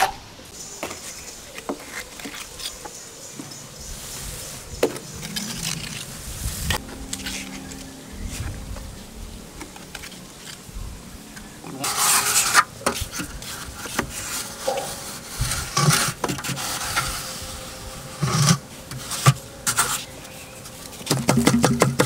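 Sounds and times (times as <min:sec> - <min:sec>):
metal straightedge scraping wet cement: 0:11.7 - 0:20.2
sharp knocks: 0:21.1 - 0:22.0.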